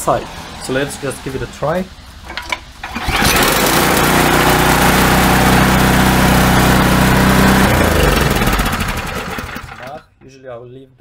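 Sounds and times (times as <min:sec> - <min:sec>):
snowblower engine running: 0:02.8 - 0:10.0.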